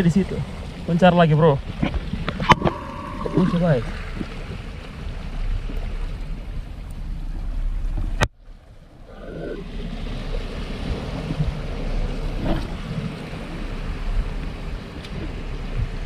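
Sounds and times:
sea waves washing over rocks: 0:00.0 - 0:07.8, 0:08.8 - 0:16.0
wind buffeting microphone: 0:00.0 - 0:16.0.

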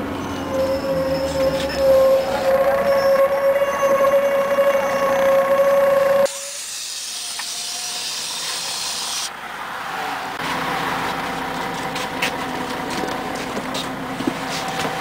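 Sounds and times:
bus diesel engine running: 0:10.3 - 0:15.0.

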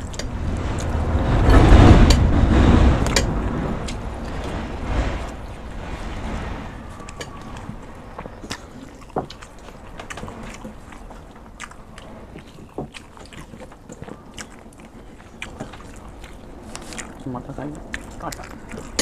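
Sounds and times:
chewing and mouth clicks: 0:07.0 - 0:19.0.

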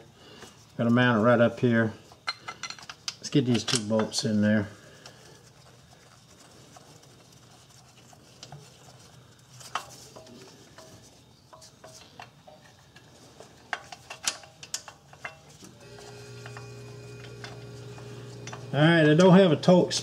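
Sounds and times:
small metal clicks: 0:11.5 - 0:15.7.

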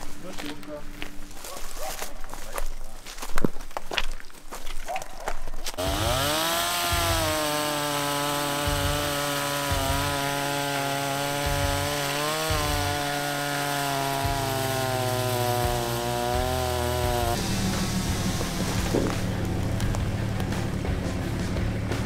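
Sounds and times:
chainsaw cutting wood: 0:05.8 - 0:20.7.

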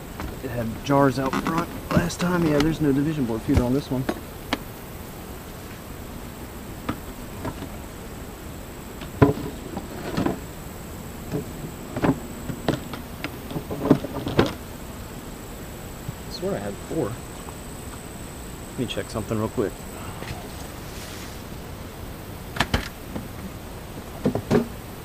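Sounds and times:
wooden beehive boxes knocking: 0:00.0 - 0:04.8, 0:05.6 - 0:15.0, 0:22.5 - 0:24.8
honeybees buzzing: 0:00.0 - 0:25.0.

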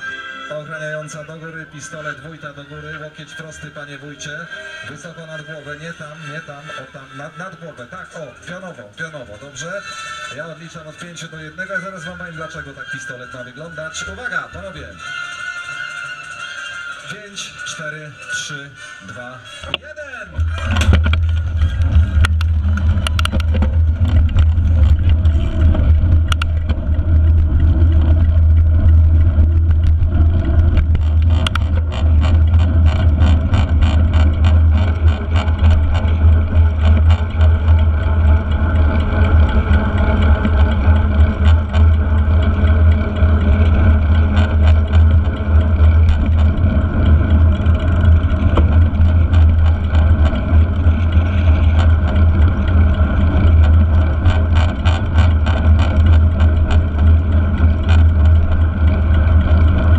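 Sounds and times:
tyres humming on road: 0:00.0 - 0:59.9
wind rumbling on microphone: 0:20.4 - 0:59.9.

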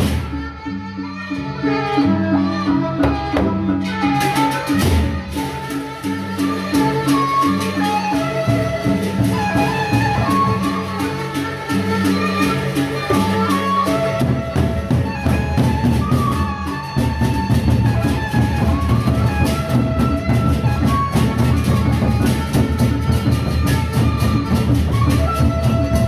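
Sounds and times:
barrel drums beaten with sticks: 0:03.0 - 0:11.0.

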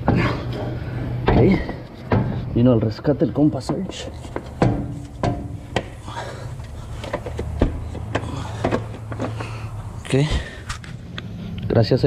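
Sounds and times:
metal knocks and scrapes: 0:00.0 - 0:06.0.

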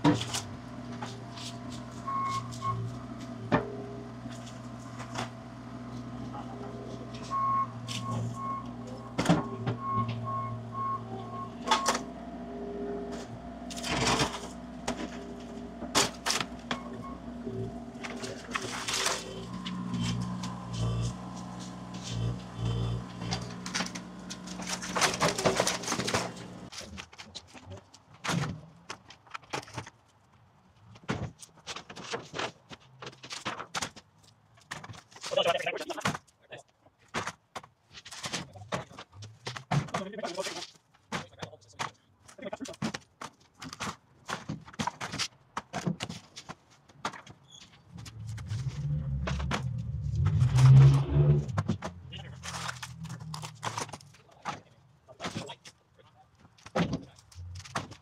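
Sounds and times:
engine running: 0:00.0 - 0:26.8, 0:47.9 - 0:54.5
reversing alarm beeping: 0:02.1 - 0:02.8, 0:07.3 - 0:12.0, 0:16.7 - 0:17.6
sharp knocks and clatter: 0:23.1 - 0:30.0, 0:30.9 - 0:35.3, 0:37.0 - 0:50.8, 0:51.4 - 0:55.8, 0:56.4 - 0:58.0.

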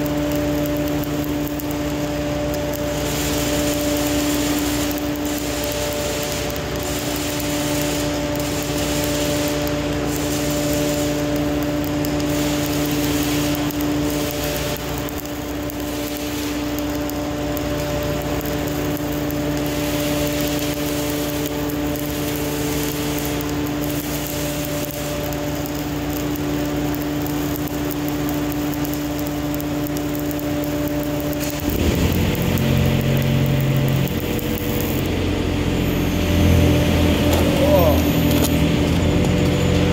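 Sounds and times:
steady hum: 0:00.0 - 0:39.9
welding arc crackling and hissing: 0:00.0 - 0:39.9
low rumble: 0:31.4 - 0:39.9.

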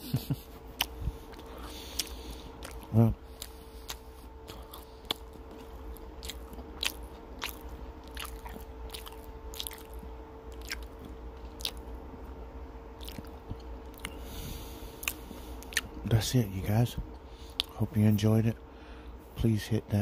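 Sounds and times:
faint hum: 0:00.0 - 0:20.0
person chewing: 0:00.1 - 0:12.0, 0:13.0 - 0:16.0, 0:17.4 - 0:17.8.

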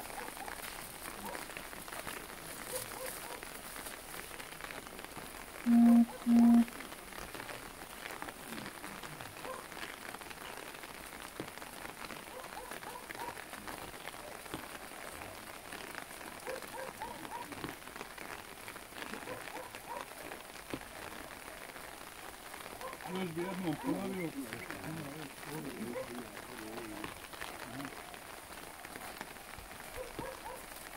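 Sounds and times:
light rain on umbrellas: 0:00.0 - 0:30.9
faint murmuring voices: 0:12.2 - 0:21.9, 0:22.7 - 0:30.7.

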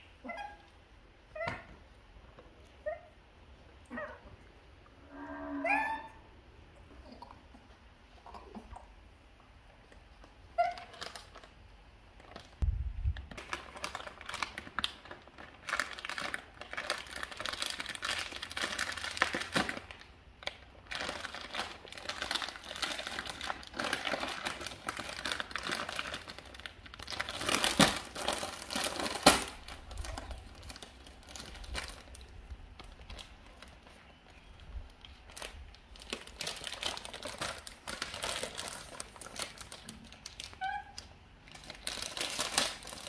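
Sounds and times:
plastic wrappers crinkling: 0:10.2 - 0:43.0.

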